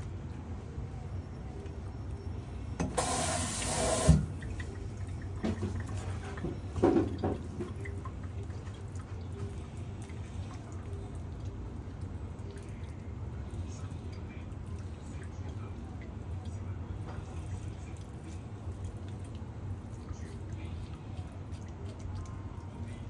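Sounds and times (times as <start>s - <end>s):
kitchen tap running: 2.8s - 18.2s.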